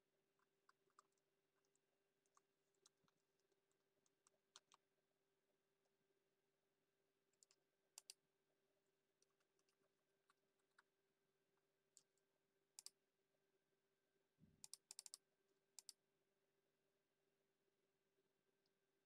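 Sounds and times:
keyboard and mouse clicks: 4.1s - 4.8s, 7.4s - 8.2s, 12.8s - 13.0s, 14.6s - 15.2s, 15.8s - 16.0s.

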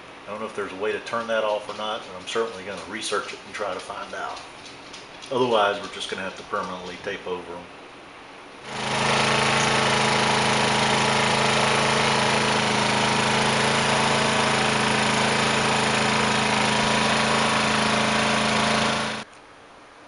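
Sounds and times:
portable generator running: 8.6s - 19.3s.

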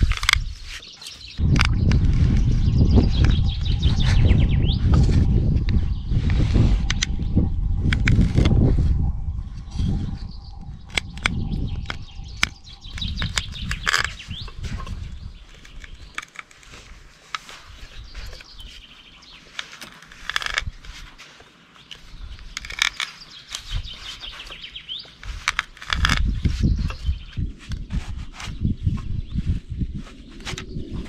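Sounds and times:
sharp clicks and cracks: 0.0s - 3.8s, 7.8s - 8.6s, 10.9s - 18.7s, 19.4s - 20.8s, 21.8s - 27.0s
birds warbling: 0.0s - 8.1s, 9.0s - 16.6s
low rumbling noise: 1.4s - 16.2s, 25.8s - 31.0s.

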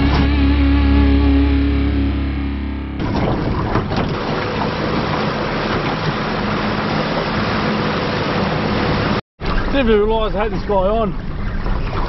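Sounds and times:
outboard motor running: 0.0s - 12.0s
water rushing past hull: 3.0s - 12.0s.

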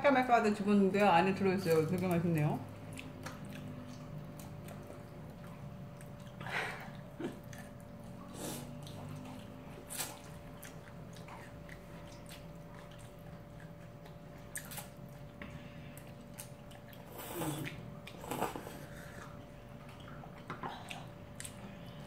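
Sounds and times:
faint hum: 0.0s - 22.0s
chewing: 1.6s - 22.0s
person slurping noodles: 17.1s - 19.2s.

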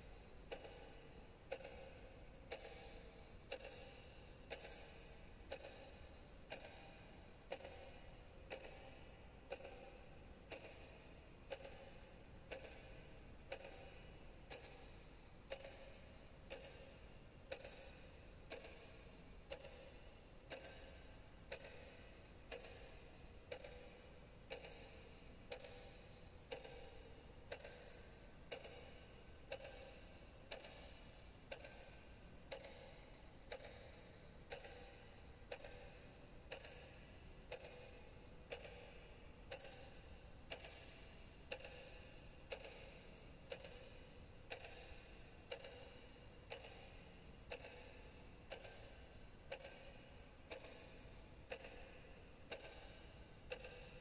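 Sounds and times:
clock ticking: 0.0s - 54.0s.

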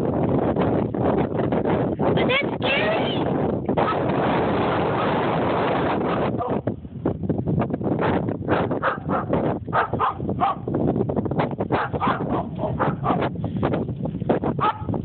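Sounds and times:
dogs barking: 8.5s - 10.7s, 11.7s - 13.3s, 14.6s - 14.9s.

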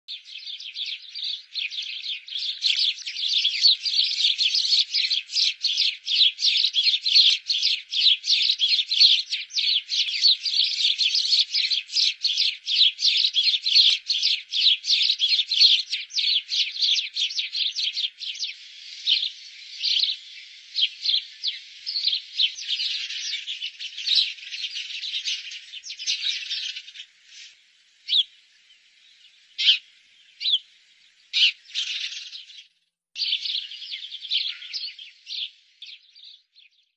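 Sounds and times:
sparrows chirping: 0.0s - 36.9s.

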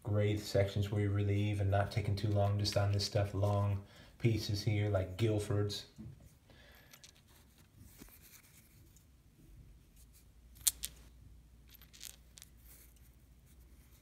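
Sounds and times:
stone clicking against stone: 10.6s - 11.0s.

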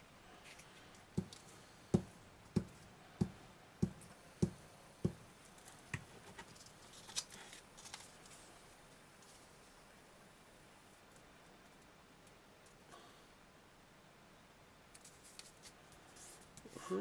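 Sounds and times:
glue stick knocking on card: 2.0s - 5.2s.

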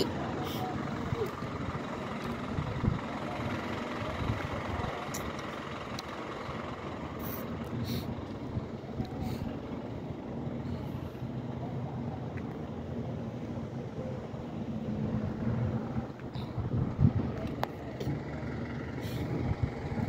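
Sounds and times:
motor vehicle low rumble: 0.0s - 20.0s.

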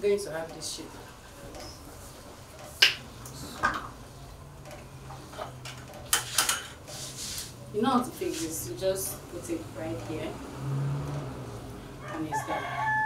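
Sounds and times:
kitchen tools clicking: 5.4s - 6.8s.

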